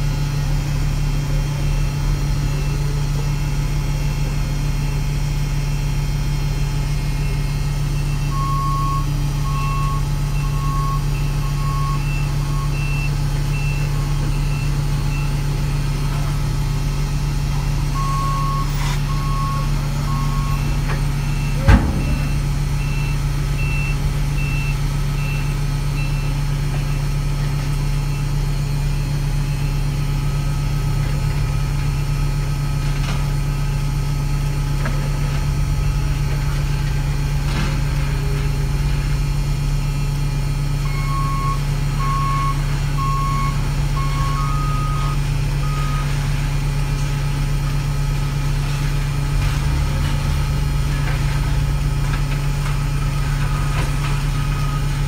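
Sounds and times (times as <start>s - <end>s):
diesel truck engine running: 0.0s - 55.0s
low-pitched backup alarm beeping: 6.5s - 30.7s, 37.6s - 46.6s
high-pitched backup alarm beeping: 7.2s - 15.6s, 17.8s - 27.1s, 40.8s - 46.2s.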